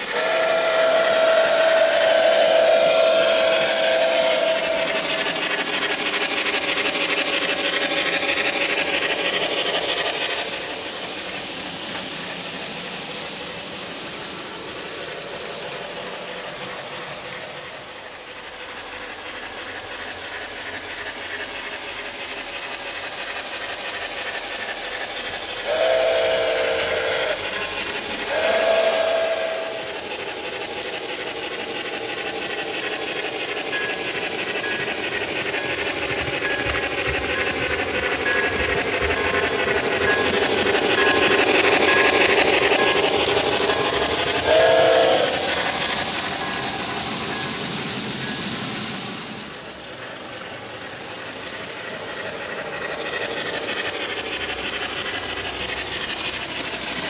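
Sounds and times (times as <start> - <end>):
steam whistle blasts: 0.0 - 5.5, 25.6 - 27.5, 28.3 - 30.0, 44.4 - 46.0
steam locomotive chuffing: 0.0 - 57.0.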